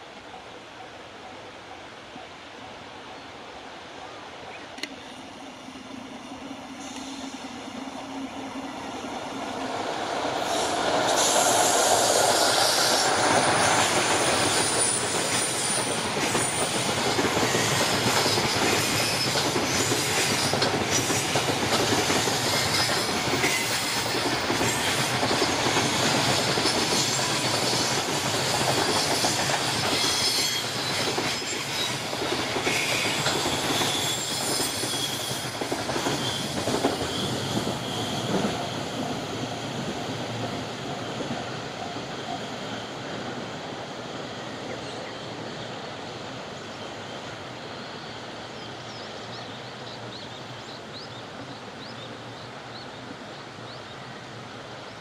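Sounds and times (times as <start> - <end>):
train wheels rolling: 4.8 - 47.4
high-pitched wheel squeal: 32.7 - 39.6.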